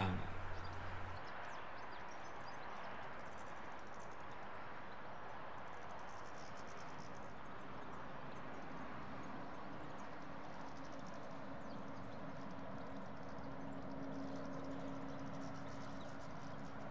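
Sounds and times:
goldfinches twittering: 0.0 - 1.2.

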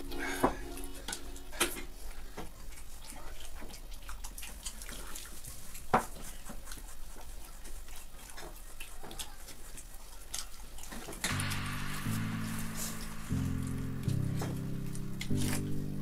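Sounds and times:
wet chewing: 2.3 - 11.3.

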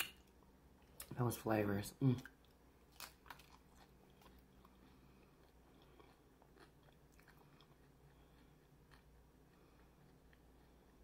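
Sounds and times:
chewing crunchy chips: 2.2 - 11.0.

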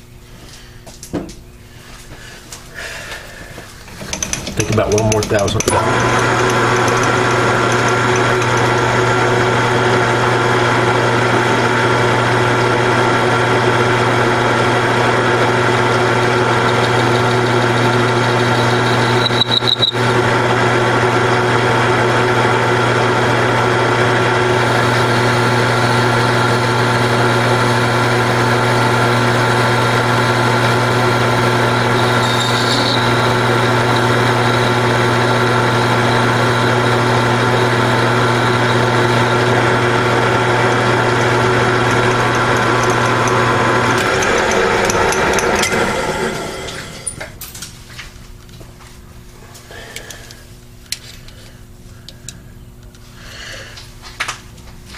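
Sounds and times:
metal lathe running: 3.8 - 47.4
short high squeak: 18.4 - 20.0, 32.0 - 33.3.

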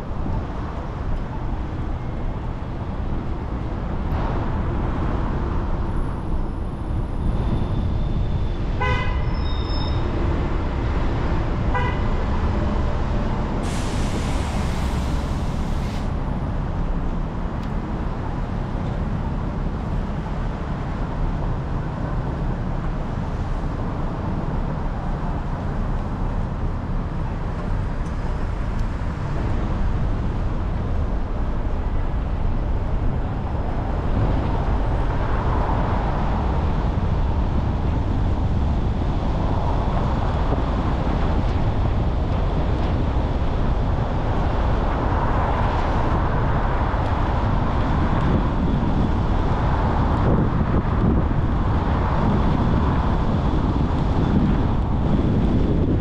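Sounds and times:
car road noise rumble: 0.0 - 56.0
tyres hissing on wet pavement: 13.6 - 16.2.

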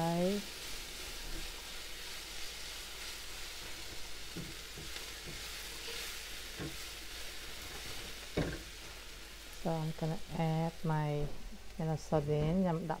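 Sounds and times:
onion sizzling in a frying pan: 0.0 - 13.0
spatula knocking and scraping pan: 3.6 - 7.0, 7.6 - 8.8.

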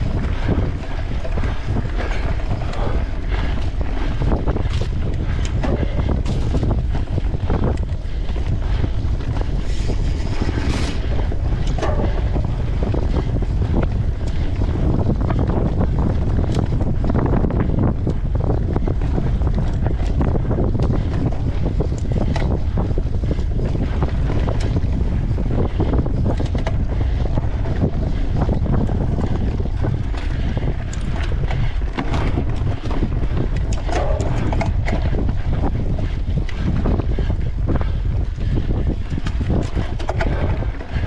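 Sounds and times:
bike clicks and rattles: 0.0 - 41.0
wind buffeting microphone: 0.0 - 41.0.

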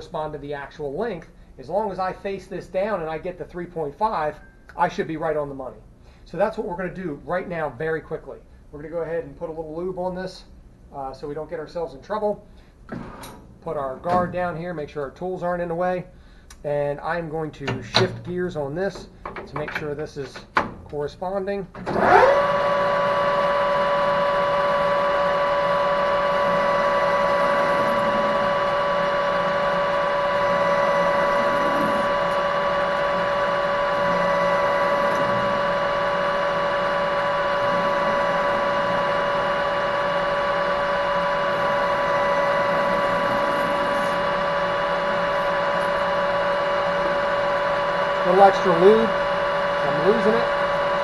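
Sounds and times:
lathe gears whining: 21.9 - 51.0
lathe tool cutting steel: 21.9 - 51.0.

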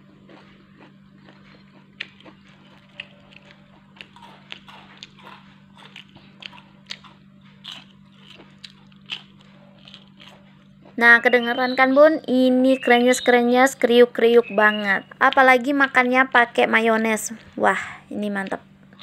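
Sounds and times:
crunchy food being chewed: 0.0 - 11.4.

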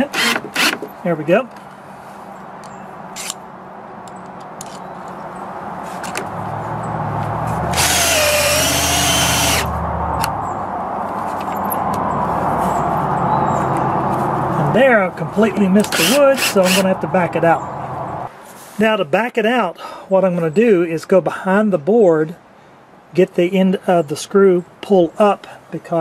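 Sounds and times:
power drill driving a screw: 0.1 - 0.8, 7.7 - 9.7, 15.9 - 16.8.

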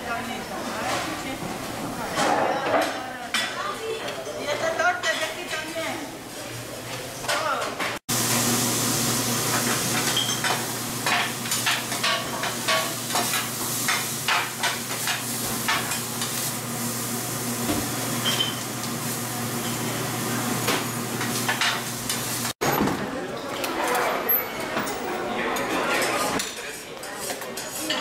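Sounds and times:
food sizzling on griddle: 8.1 - 22.6.

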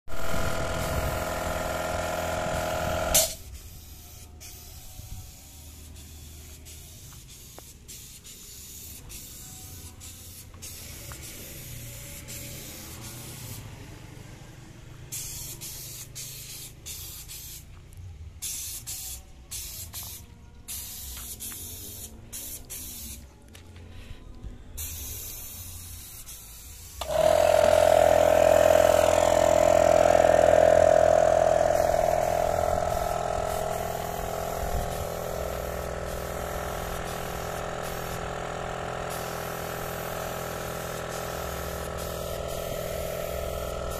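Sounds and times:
motor drone: 0.1 - 3.4, 27.0 - 39.2
paint spray gun hissing: 0.1 - 13.7, 15.1 - 17.8, 18.4 - 23.3, 24.8 - 43.9.

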